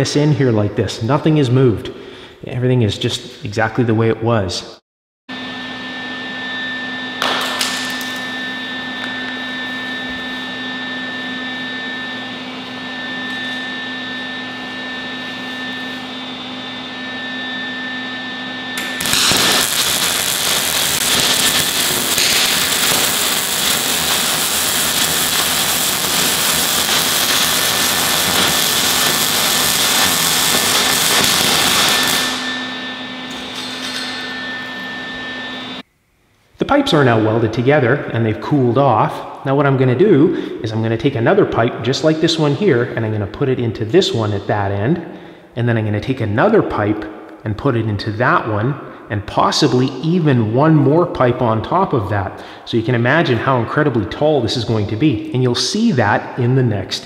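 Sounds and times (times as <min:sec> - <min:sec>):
machine hum with high whine: 0:05.3 - 0:57.0
welding arc crackling: 0:18.8 - 0:32.7.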